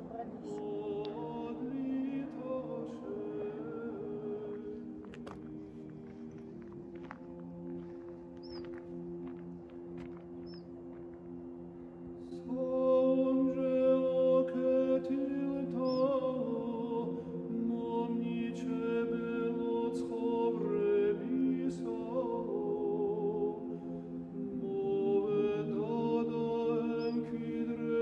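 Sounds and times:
low vocal drone: 0.0s - 5.2s, 11.7s - 28.0s
a cappella choral chant: 0.0s - 5.3s, 12.2s - 28.0s.

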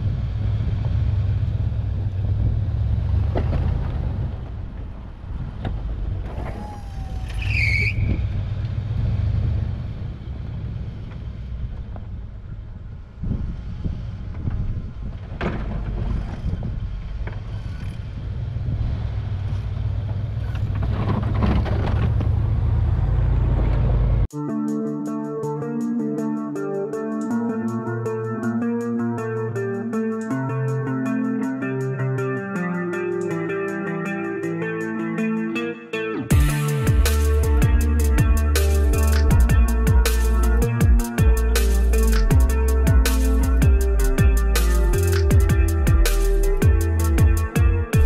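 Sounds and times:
brief high squeal: 6.4s - 8.2s.

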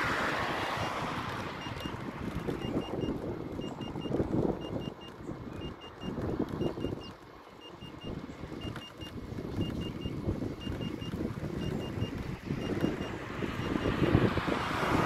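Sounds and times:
wind rumbling on microphone: 0.0s - 15.0s
high electronic warning beeps: 0.8s - 14.0s.

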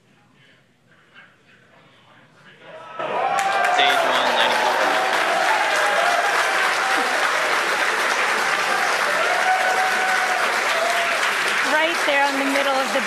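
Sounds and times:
shouts and whoops: 2.7s - 7.5s, 8.6s - 11.4s
crowd cheering and applauding: 2.7s - 13.0s.

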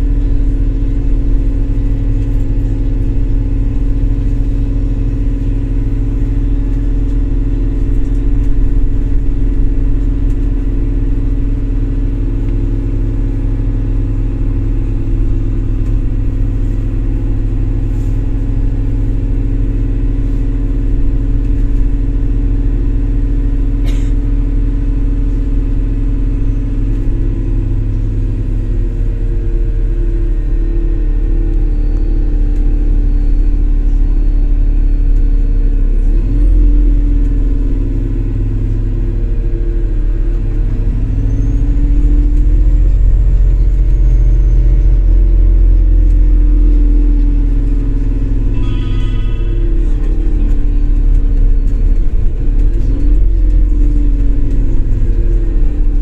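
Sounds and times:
bus engine drone: 0.0s - 56.0s.

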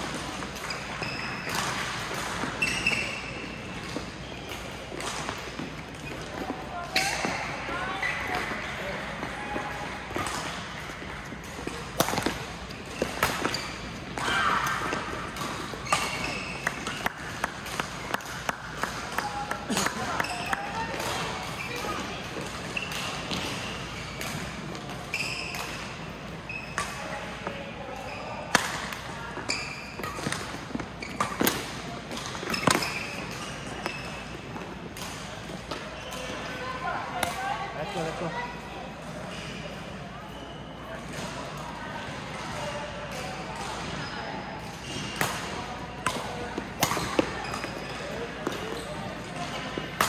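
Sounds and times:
shoes squeaking on court floor: 0.2s - 38.4s, 39.1s - 41.4s, 43.8s - 50.0s
shoe squeaks on court: 0.6s - 1.8s, 2.4s - 4.5s, 12.1s - 14.1s, 15.7s - 17.2s, 20.1s - 24.3s, 25.0s - 27.2s, 29.4s - 31.5s, 32.4s - 34.4s, 35.6s - 36.7s, 46.3s - 49.7s
rackets striking shuttlecock: 11.3s - 13.7s, 30.0s - 34.1s, 45.1s - 48.8s
racket hitting shuttlecock: 11.4s - 13.6s, 45.2s - 47.8s.

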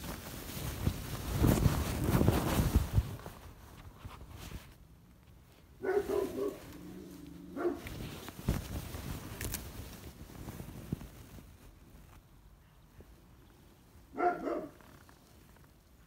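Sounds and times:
rustling and knocking handling noise: 0.0s - 6.9s, 7.6s - 12.3s.

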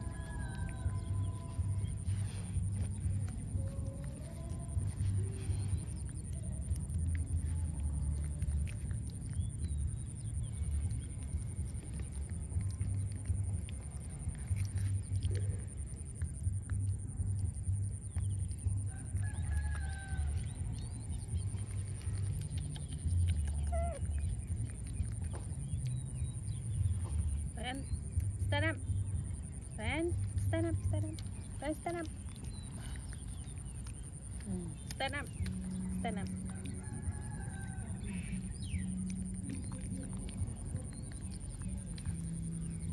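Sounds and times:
monkeys chewing: 0.0s - 42.9s
wavering animal call: 23.2s - 24.5s.

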